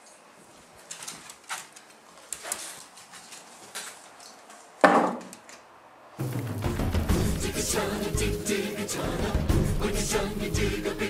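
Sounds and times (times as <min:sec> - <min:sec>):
sudden scrape or bump: 0:06.2 - 0:07.7.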